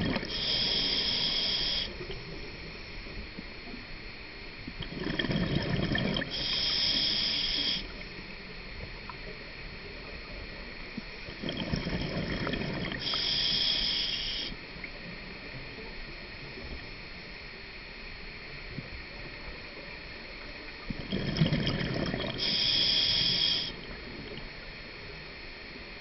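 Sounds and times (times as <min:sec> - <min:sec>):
exhaled bubbles burbling: 0:00.0 - 0:00.6, 0:04.7 - 0:06.7, 0:11.2 - 0:13.2, 0:20.8 - 0:22.6
regulator inhale hiss: 0:00.0 - 0:03.2, 0:05.0 - 0:08.3, 0:11.3 - 0:14.8, 0:21.2 - 0:24.4.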